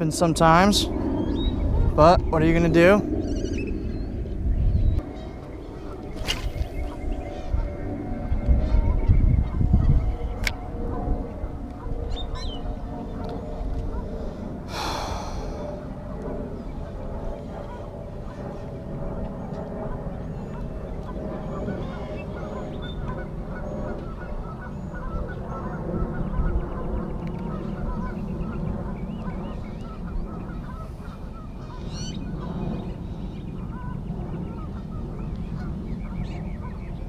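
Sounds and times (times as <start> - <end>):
steady low rumble: 0.0 - 37.0
waterfowl calling: 29.8 - 32.2.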